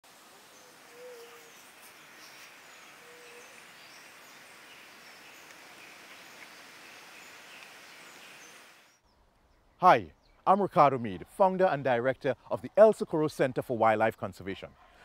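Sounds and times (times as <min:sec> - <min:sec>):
background hiss: 0:00.0 - 0:10.4.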